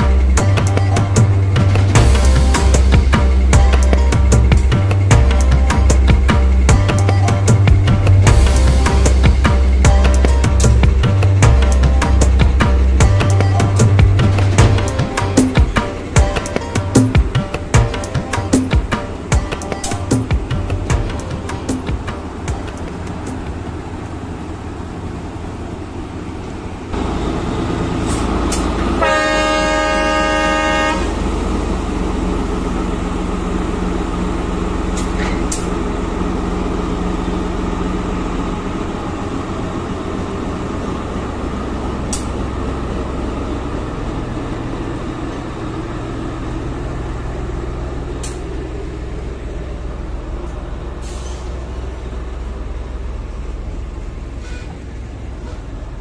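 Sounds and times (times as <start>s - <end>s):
locomotive engine running: 0.0s - 56.0s
locomotive horn: 27.0s - 31.8s, 54.3s - 56.0s.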